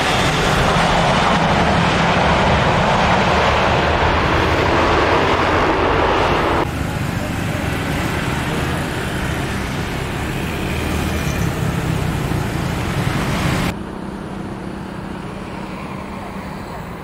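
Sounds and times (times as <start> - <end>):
jet airliners taxiing: 0.0 - 17.0
traffic noise: 0.0 - 17.0.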